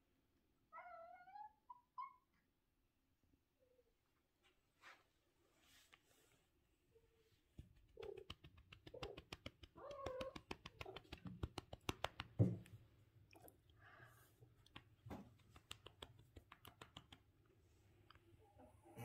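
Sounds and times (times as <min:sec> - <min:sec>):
quick clicks and taps: 0:07.6 - 0:12.8, 0:14.6 - 0:17.4.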